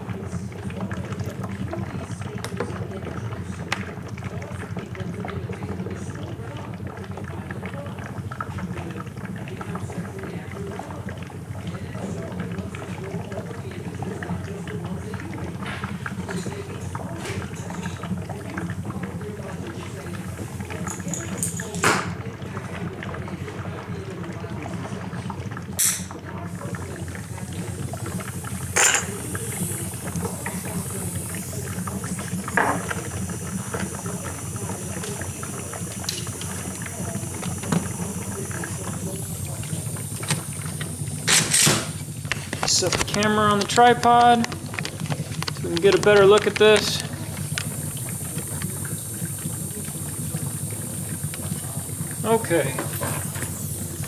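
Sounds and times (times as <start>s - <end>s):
electrolysis cell bubbling: 0.0s - 54.0s
steady low hum: 3.0s - 54.0s
crackling and popping: 25.4s - 52.2s
small crackling ticks: 42.3s - 48.8s.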